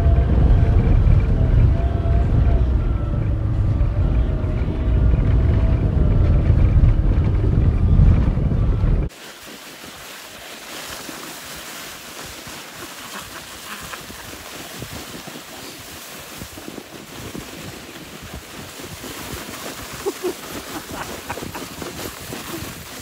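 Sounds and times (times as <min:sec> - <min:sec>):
wind rushing over microphone: 0:00.0 - 0:09.1, 0:13.2 - 0:23.0
sledge runners hissing on snow: 0:09.1 - 0:23.0.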